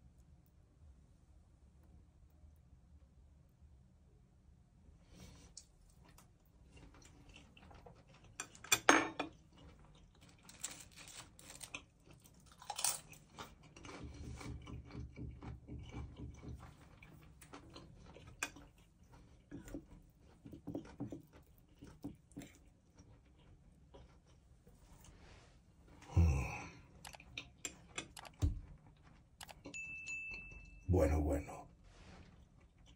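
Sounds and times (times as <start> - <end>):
chewing: 5.5 - 25.2, 25.9 - 29.8, 32.2 - 32.9.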